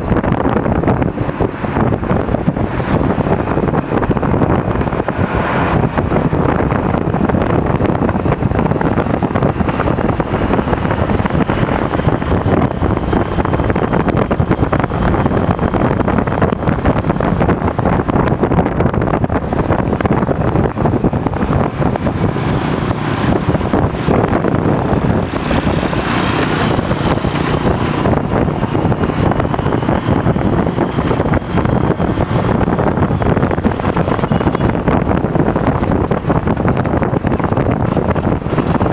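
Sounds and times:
motorcycle engine running: 0.0s - 38.9s
wind buffeting microphone: 0.0s - 38.9s.

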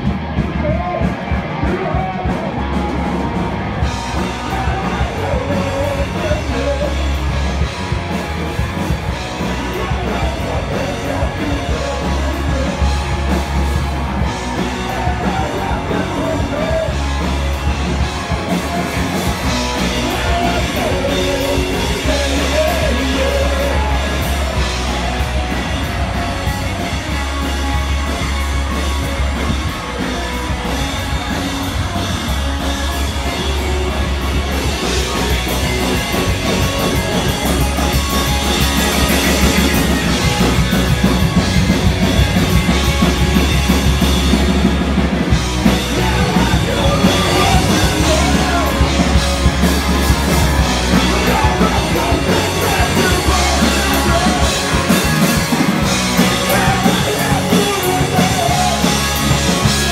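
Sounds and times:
drum kit: 0.0s - 59.9s
loud rock music: 0.0s - 59.9s
person singing: 4.0s - 7.6s, 9.2s - 27.9s, 45.5s - 59.9s.

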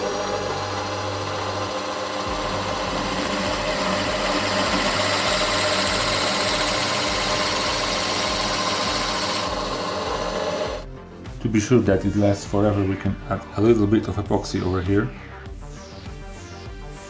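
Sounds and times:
drill press boring through ball: 0.0s - 10.9s.

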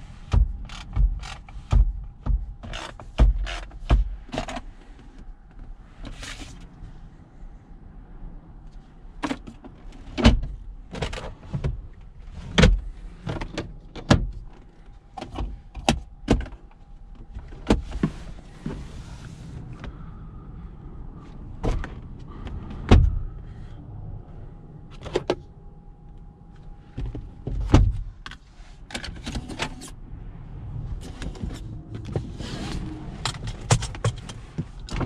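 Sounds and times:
sharp clicks and knocks: 0.3s - 4.6s, 33.2s - 35.0s.

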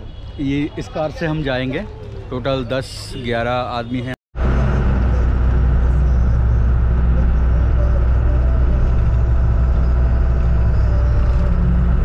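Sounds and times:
car driving on paved road: 4.4s - 12.0s.

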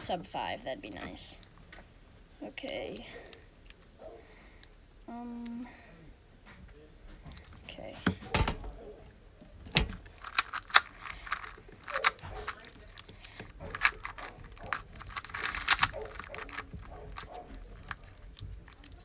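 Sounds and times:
puzzle cube plastic clicks: 9.8s - 19.0s.

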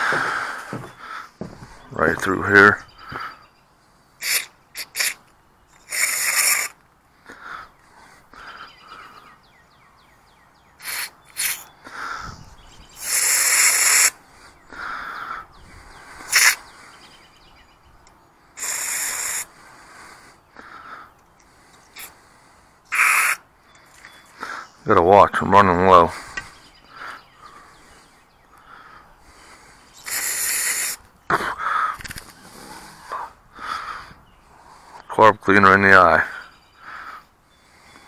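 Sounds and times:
aerosol spray hissing: 4.2s - 5.2s, 5.9s - 6.7s, 10.8s - 11.6s, 13.0s - 14.1s, 16.3s - 16.6s, 18.6s - 19.5s, 30.1s - 31.0s.

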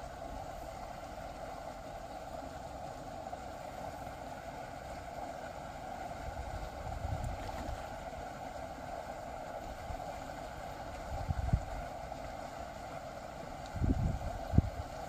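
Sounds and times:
wind rumble on microphone: 6.4s - 7.8s, 11.1s - 11.8s, 13.6s - 15.0s.

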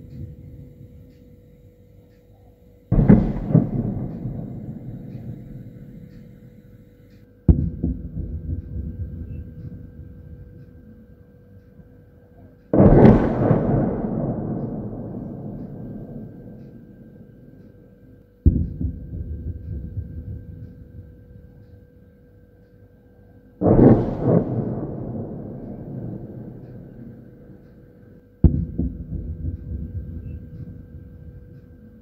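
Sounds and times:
distant artillery booms: 2.9s - 6.6s, 7.5s - 10.5s, 12.8s - 17.5s, 23.6s - 31.6s
rumbling boom echo: 2.9s - 6.6s, 7.5s - 10.6s, 12.7s - 17.6s, 18.4s - 21.6s, 23.6s - 31.8s.

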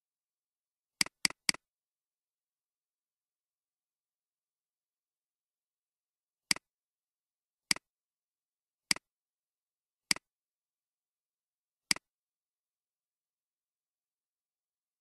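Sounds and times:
computer mouse clicks: 1.0s - 1.6s.

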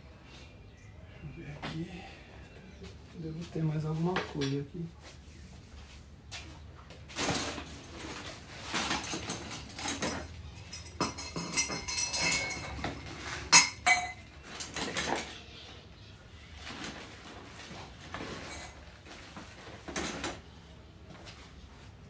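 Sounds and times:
metal parts clinking: 7.2s - 15.3s.

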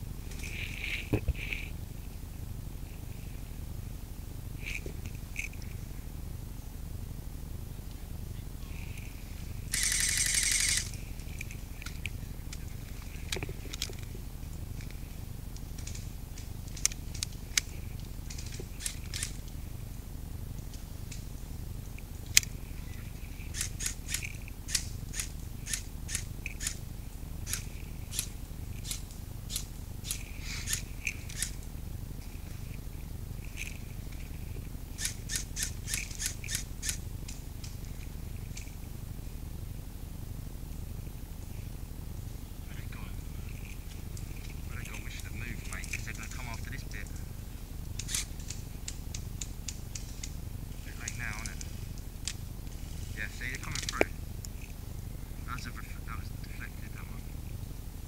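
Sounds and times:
airsoft gunfire: 9.8s - 10.9s.

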